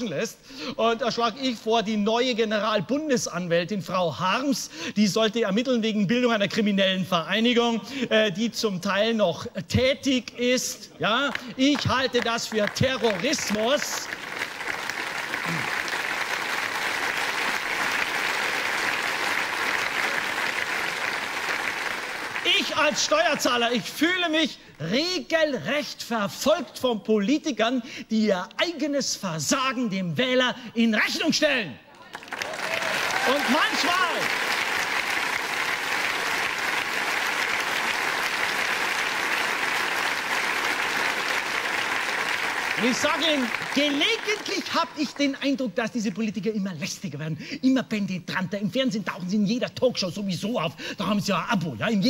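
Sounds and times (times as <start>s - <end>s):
audience applauding: 11.2s - 23.8s, 32.0s - 45.4s.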